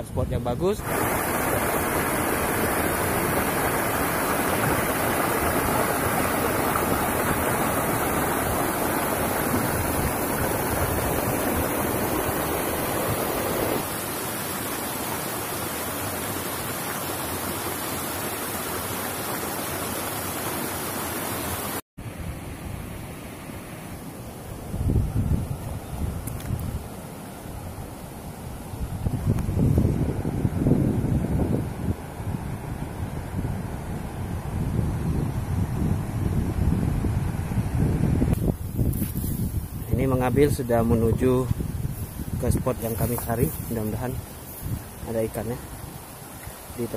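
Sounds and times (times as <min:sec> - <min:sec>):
stream rushing over rocks: 0:00.8 - 0:21.8, 0:38.4 - 0:46.9.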